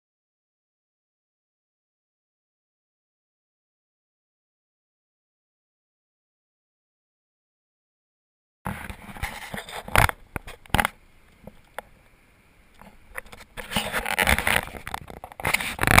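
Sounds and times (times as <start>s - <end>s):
camera handling noise: 8.7s - 11.8s, 12.8s - 16.0s
rustling: 12.7s - 16.0s.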